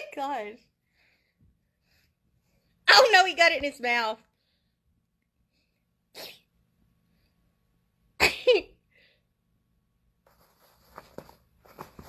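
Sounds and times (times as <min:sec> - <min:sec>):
soft breath: 0:00.7 - 0:02.8
loud sneeze: 0:06.1 - 0:06.5.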